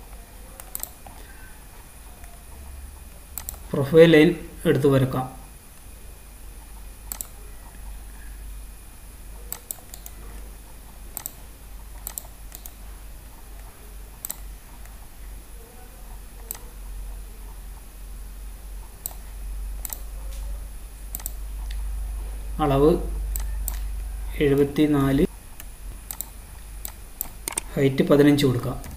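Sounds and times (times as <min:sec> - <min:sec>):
steady low hum: 0:00.0 - 0:28.9
computer mouse clicking: 0:00.1 - 0:01.2, 0:03.3 - 0:03.7, 0:06.6 - 0:07.9, 0:09.4 - 0:15.0, 0:16.1 - 0:16.7, 0:19.0 - 0:20.4, 0:21.1 - 0:21.8, 0:23.3 - 0:24.1, 0:25.6 - 0:28.9.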